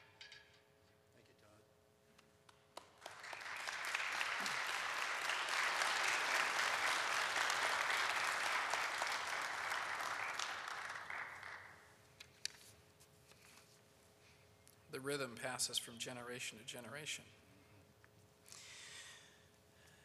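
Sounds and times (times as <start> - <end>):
congregation applauding: 2.5 - 12.0.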